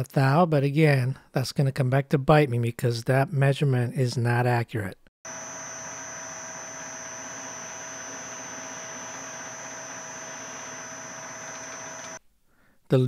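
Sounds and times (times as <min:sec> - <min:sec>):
lathe drilling steel with whine: 0:05.3 - 0:12.2.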